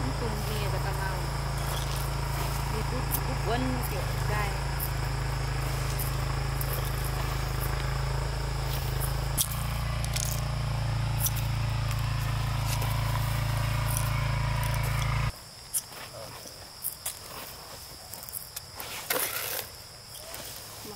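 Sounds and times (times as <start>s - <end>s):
small motor humming: 0.0s - 15.3s
insects chirring: 0.0s - 20.9s.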